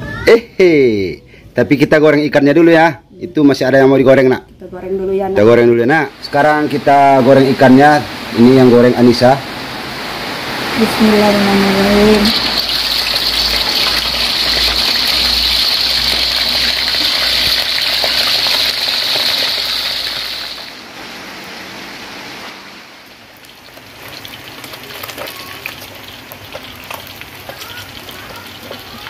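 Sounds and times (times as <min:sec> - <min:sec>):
fish sizzling in oil: 0:06.2 - 0:20.9, 0:22.0 - 0:29.0
oil popping and crackling: 0:12.1 - 0:20.8, 0:23.1 - 0:29.0.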